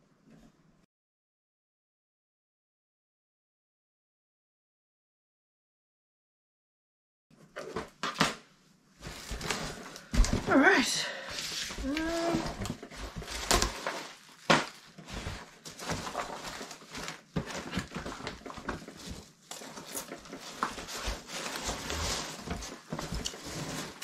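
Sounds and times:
packing peanuts rustling: 11.2s - 24.0s.

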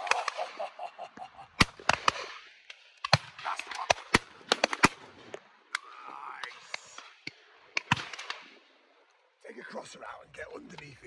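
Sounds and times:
shotgun shots: 1.6s - 5.2s, 7.8s - 8.6s.

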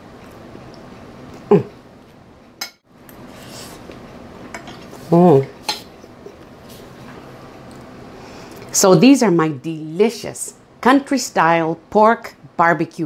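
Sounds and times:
person humming mmm: 1.4s - 1.8s.

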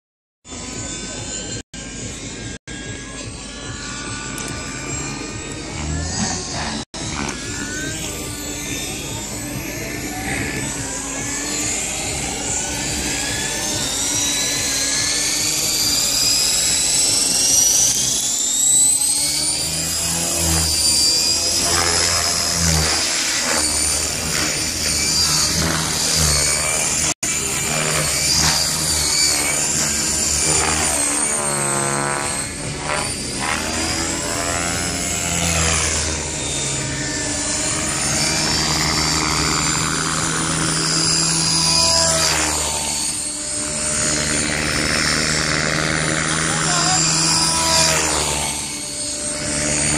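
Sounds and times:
rc helicopter motor and rotor whine: 0.4s - 49.9s.

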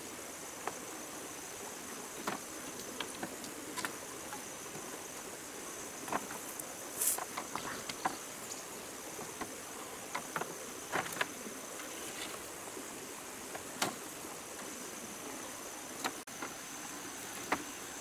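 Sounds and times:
bamboo poles clicking and knocking: 0.6s - 0.8s, 2.2s - 4.9s, 6.0s - 12.5s, 13.5s - 14.7s, 15.9s - 17.8s.

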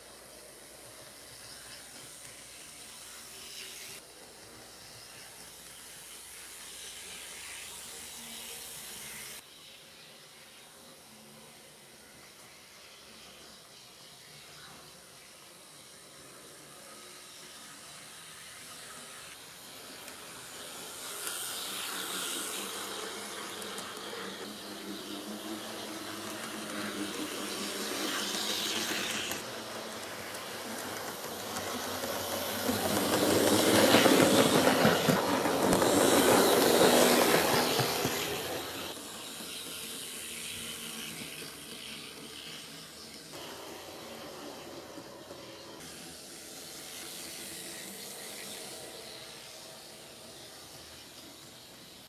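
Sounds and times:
model train rolling rumble: 14.8s - 52.0s.

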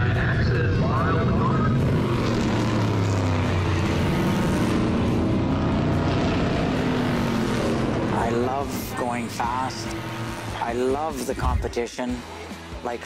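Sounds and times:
race car engines at speed: 0.0s - 13.0s.

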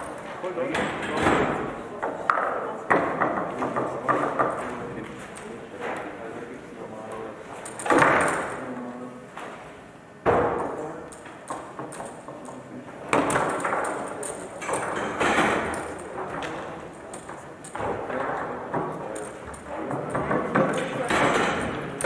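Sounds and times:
foosball rods clicking and rattling: 7.6s - 8.6s, 10.6s - 22.0s.

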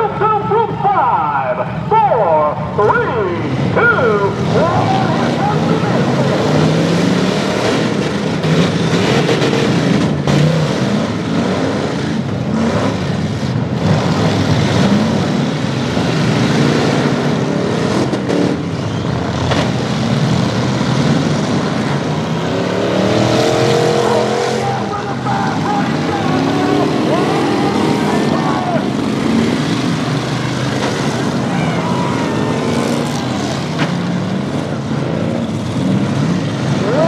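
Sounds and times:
car engines revving hard: 0.0s - 37.0s
cars crashing into each other: 23.6s - 37.0s.

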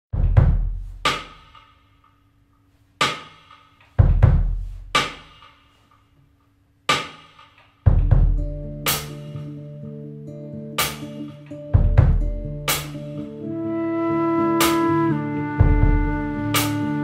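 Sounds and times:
bass drum thuds: 0.1s - 1.2s, 4.0s - 5.3s, 7.9s - 8.6s, 11.8s - 12.9s, 15.6s - 16.5s
snare or tom strikes: 0.1s - 2.0s, 3.0s - 5.7s, 6.9s - 9.5s, 10.8s - 11.2s, 11.8s - 13.1s
sustained guitar notes: 8.4s - 17.0s.

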